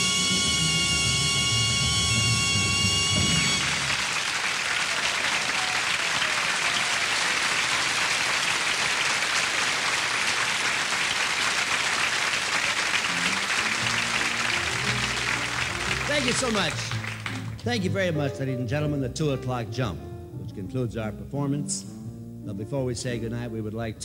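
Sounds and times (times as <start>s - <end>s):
big band held chord: 0.0s - 4.8s, 12.4s - 22.9s
audience applauding: 2.5s - 18.0s.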